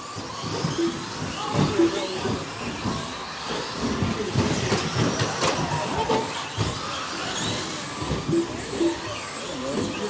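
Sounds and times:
electric motors whining: 0.0 - 10.0.

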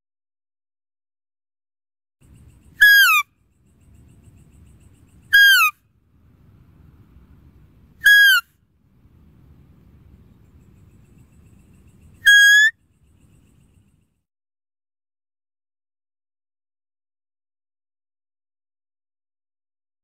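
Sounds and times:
high-pitched deer calls: 2.7 - 3.3, 5.3 - 5.8, 8.0 - 8.5, 12.2 - 12.8
faint low rumble: 6.0 - 8.0, 8.7 - 12.2.

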